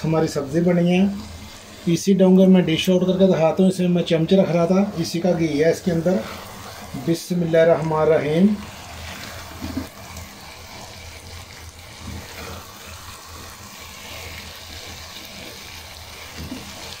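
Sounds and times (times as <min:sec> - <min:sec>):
curry sizzling in a pot: 0:00.0 - 0:17.0.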